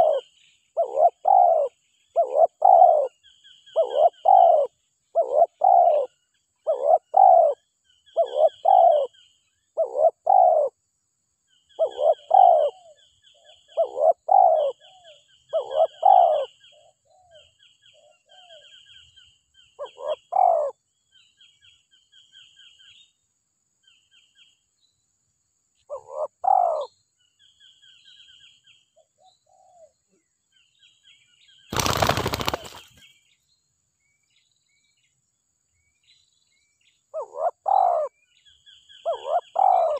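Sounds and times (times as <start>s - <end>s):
dove cooing: 0.0s - 7.6s, 8.2s - 9.1s, 9.8s - 10.7s, 11.8s - 13.0s, 13.7s - 17.4s, 19.8s - 20.8s, 25.9s - 26.9s, 29.2s - 29.9s, 31.7s - 32.9s, 37.2s - 38.1s, 39.0s - 39.9s
small birds chirping: 0.0s - 10.8s, 11.4s - 25.1s, 25.8s - 39.9s.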